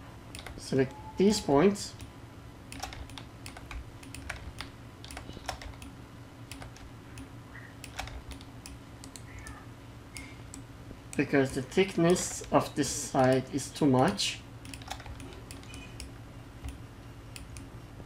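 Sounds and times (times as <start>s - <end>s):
steady low hum: 0.0s - 18.0s
keyboard and mouse clicks: 0.3s - 0.6s, 2.7s - 9.6s, 11.2s - 12.6s, 13.2s - 16.8s, 17.4s - 17.7s.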